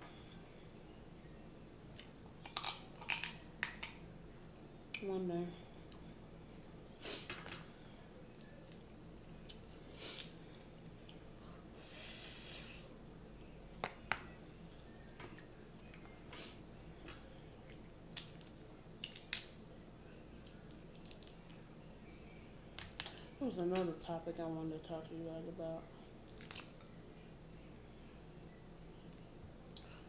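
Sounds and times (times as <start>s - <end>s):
crab shells cracking: 2.0s - 4.0s, 18.1s - 19.6s, 20.4s - 21.6s, 22.8s - 23.3s, 26.3s - 26.8s
soft chewing: 14.7s - 19.4s, 29.0s - 30.0s.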